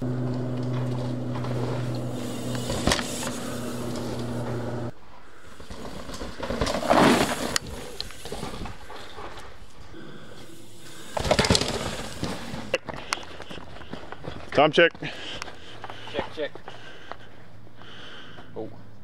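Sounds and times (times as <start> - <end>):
steady buzz: 0.0 - 5.6
bike tyres crunching on dirt: 0.0 - 17.3.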